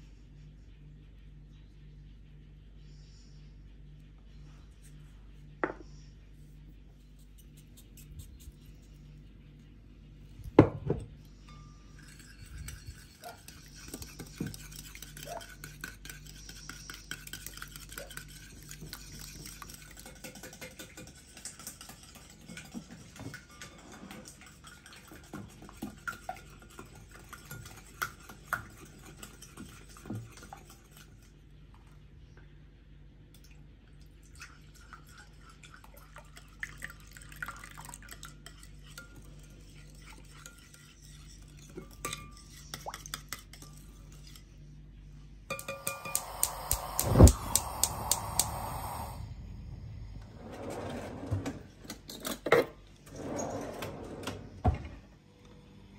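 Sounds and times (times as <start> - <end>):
whisk clinking on glass bowl: 11.5 - 31.0, 38.0 - 44.4, 45.5 - 47.1.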